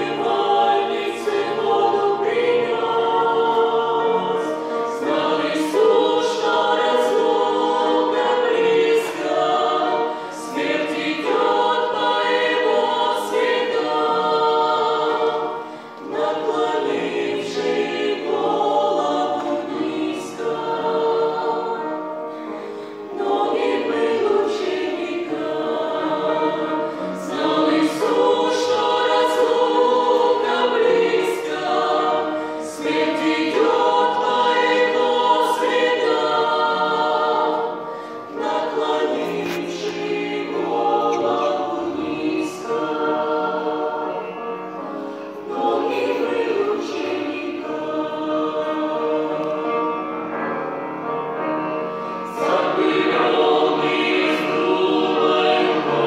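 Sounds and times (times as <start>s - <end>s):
group singing in harmony: 0.0s - 56.0s.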